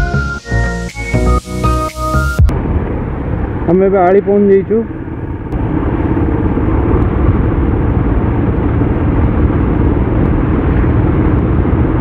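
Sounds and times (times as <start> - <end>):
road noise: 0.0 - 12.0
wind rumble: 0.0 - 12.0
motorcycle engine: 2.2 - 12.0.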